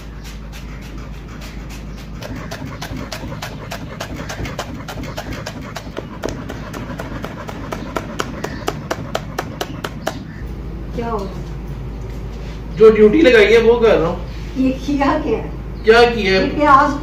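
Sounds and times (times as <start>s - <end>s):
knife chopping on cutting board: 2.2s - 10.3s.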